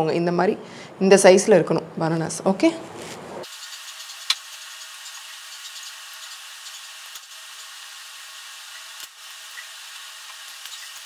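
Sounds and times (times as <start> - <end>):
steady hiss: 3.4 - 11.0.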